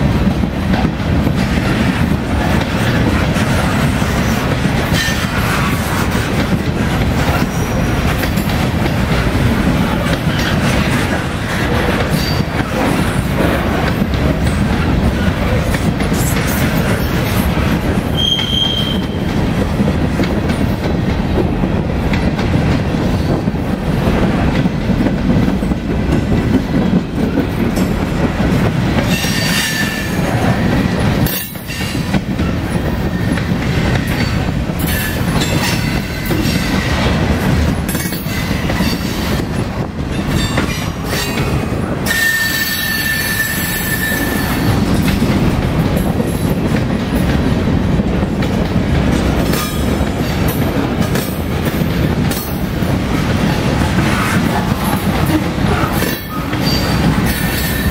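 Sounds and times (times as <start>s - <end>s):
train wheels rumbling on rails: 0.0s - 57.9s
high-pitched wheel squeal: 18.2s - 19.2s.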